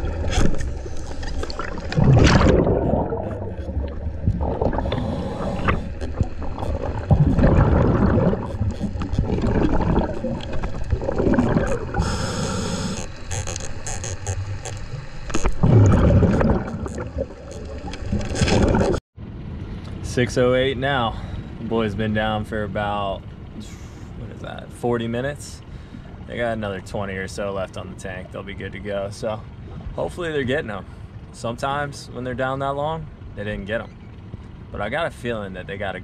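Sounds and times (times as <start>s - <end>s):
gurgling bubble exhalations: 0.0s - 13.0s, 15.5s - 19.0s
hissing regulator inhalations: 4.7s - 6.7s, 11.7s - 13.7s.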